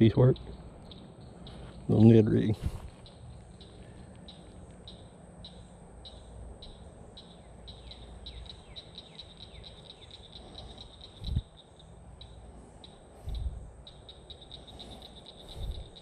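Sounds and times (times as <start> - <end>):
frog calling with sharp clicks: 3.0 - 16.0.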